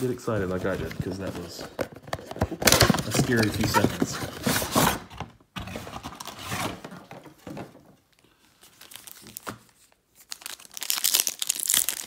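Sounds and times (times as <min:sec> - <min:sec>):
foil wrapper crinkling: 0:10.2 - 0:12.0.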